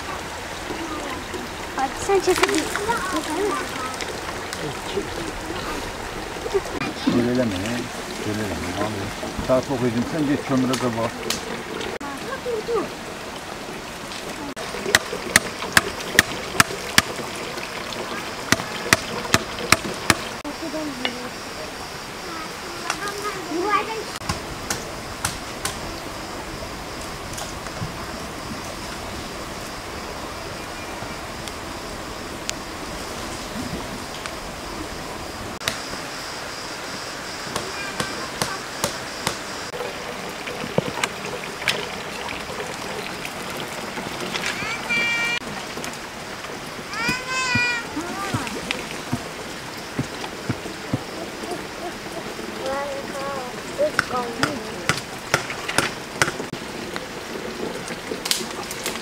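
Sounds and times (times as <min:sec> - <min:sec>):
running water: 0:00.0 - 0:59.0
stream rushing: 0:00.0 - 0:59.0
bamboo tubes knocking: 0:14.9 - 0:17.2, 0:18.5 - 0:20.4.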